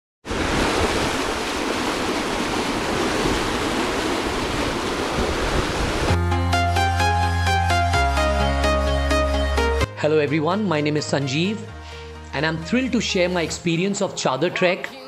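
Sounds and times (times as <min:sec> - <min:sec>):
river water rushing through rapids: 0:00.3 - 0:06.2.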